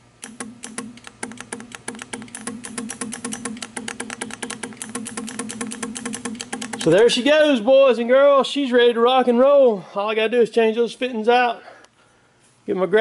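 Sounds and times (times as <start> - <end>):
steady hum: 0.0 - 13.0
solenoid clicking rapidly: 0.2 - 7.1.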